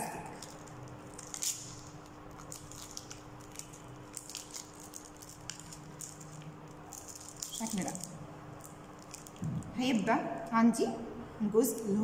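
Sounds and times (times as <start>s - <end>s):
syringe pack crinkling: 0.2s - 9.7s.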